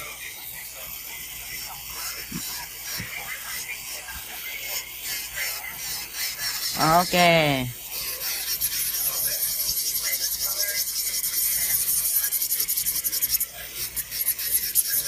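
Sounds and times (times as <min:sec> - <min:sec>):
nail file rasping: 0:05.0 - 0:15.0.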